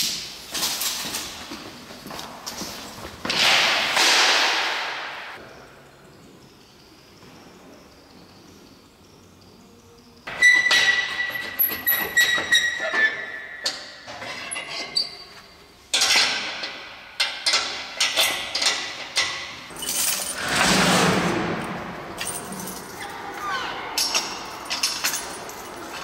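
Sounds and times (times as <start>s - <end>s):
metal latch clinking and rattling: 15.9s - 20.6s, 24.0s - 26.0s
rattling metal scrape: 19.7s - 22.8s.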